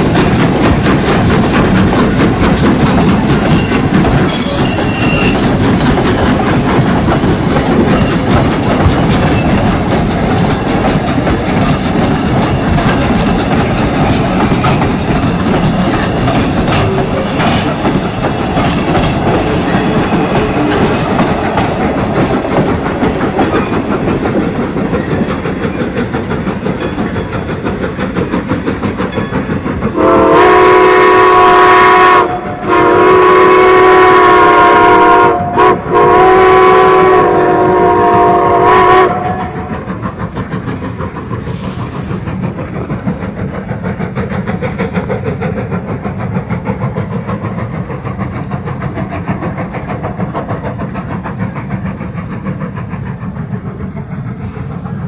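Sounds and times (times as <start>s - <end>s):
train rumble and clickety-clack: 0.0s - 55.0s
steam locomotive whistle: 3.4s - 5.8s, 29.9s - 39.9s.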